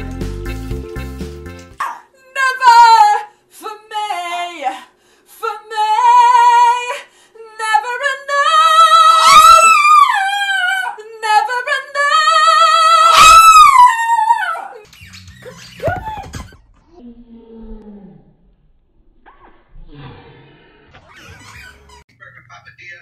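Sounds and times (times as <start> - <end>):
woman singing a ballad: 1.8 - 14.8
small dog howling: 8.9 - 10.8, 12.9 - 14.8.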